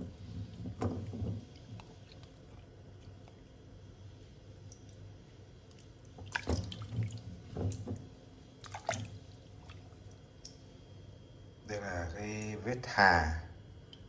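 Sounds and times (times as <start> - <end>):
water splashing in steel basin: 5.7 - 8.0, 8.6 - 10.5.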